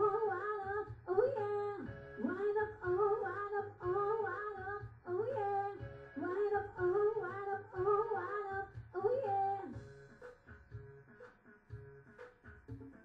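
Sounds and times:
woman singing: 0:00.0 - 0:09.8.

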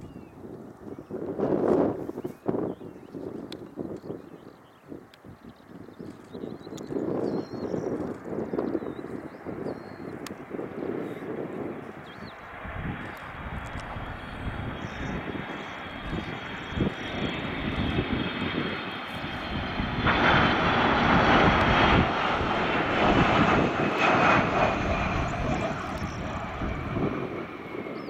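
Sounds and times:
jet engines on landing approach: 0:04.9 - 0:28.0
high engine whine: 0:12.7 - 0:28.0.

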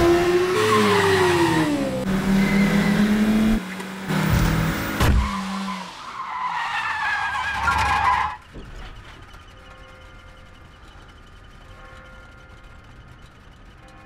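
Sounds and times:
car engine revving: 0:00.0 - 0:06.1
tyres squealing: 0:04.9 - 0:09.5.

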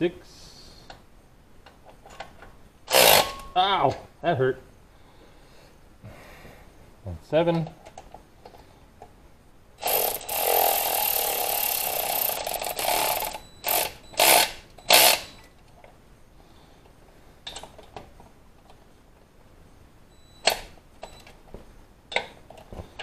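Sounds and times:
ratchet turning bolt: 0:02.9 - 0:03.4, 0:09.8 - 0:15.3.

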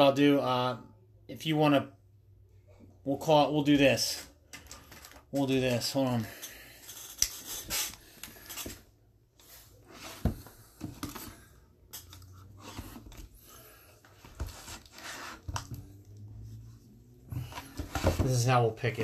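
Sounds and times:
marker scratching: 0:06.9 - 0:08.0
cardboard boxes scraping on table: 0:14.1 - 0:15.5.

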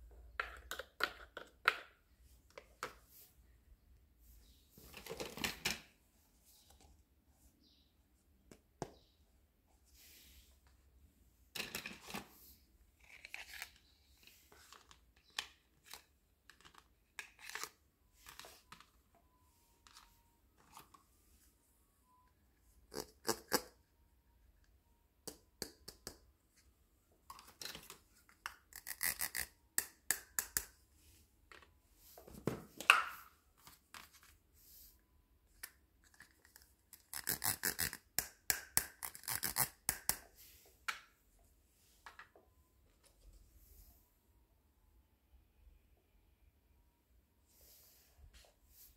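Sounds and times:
plastic toy cups clicking: 0:00.4 - 0:02.0, 0:27.4 - 0:30.7.

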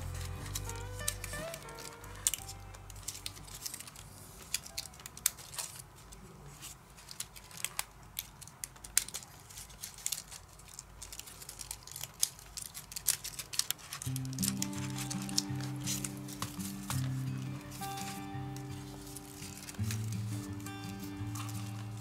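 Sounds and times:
paper rustling and clicking: 0:00.0 - 0:22.0.

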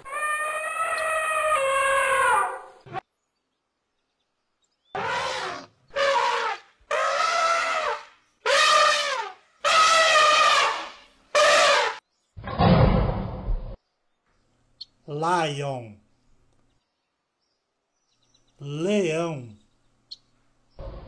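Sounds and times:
elephant trumpeting: 0:00.0 - 0:03.0, 0:05.0 - 0:12.0.

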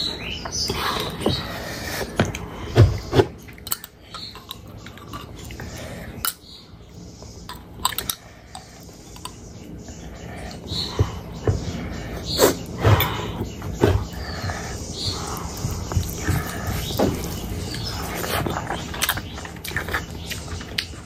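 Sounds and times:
wet chewing and lip-smacking: 0:15.1 - 0:21.0.

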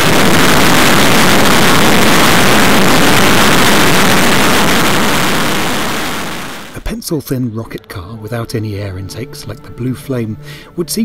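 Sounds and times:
jet engine roaring: 0:00.0 - 0:06.7.

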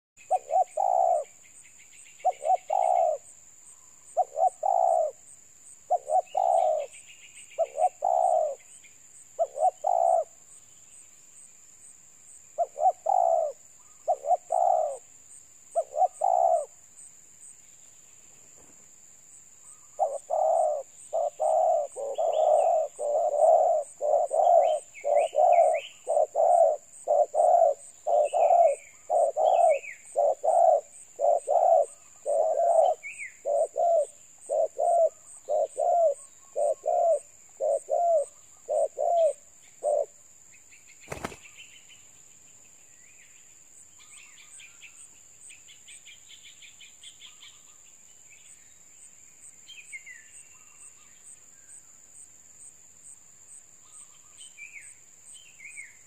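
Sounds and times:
dove cooing: 0:00.3 - 0:01.4, 0:02.2 - 0:03.3, 0:04.1 - 0:05.3, 0:05.9 - 0:07.0, 0:07.6 - 0:08.6, 0:09.4 - 0:10.4, 0:12.6 - 0:15.1, 0:15.7 - 0:16.8, 0:20.0 - 0:40.2.

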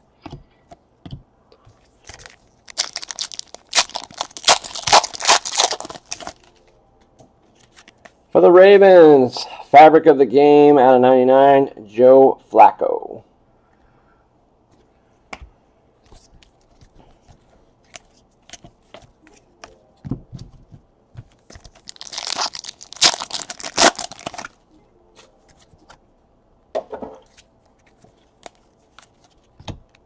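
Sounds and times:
foil wrapper tearing and crinkling: 0:02.0 - 0:06.6, 0:21.6 - 0:24.6.

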